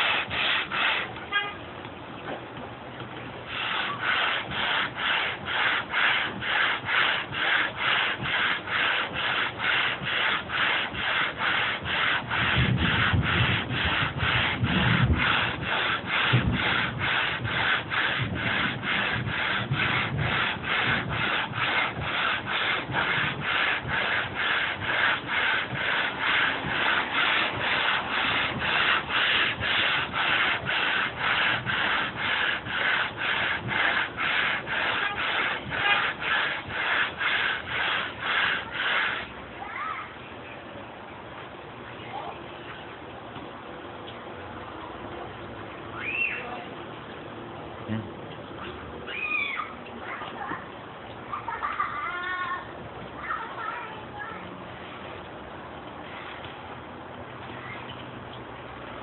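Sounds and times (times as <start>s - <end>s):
sandpaper rasping on wood: 0.0s - 1.2s, 3.5s - 39.4s.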